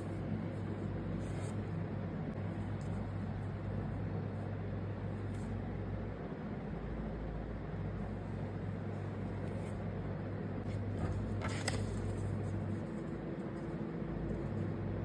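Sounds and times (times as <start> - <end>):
low background hum: 0.0 - 15.0
paper rustling: 10.7 - 14.6.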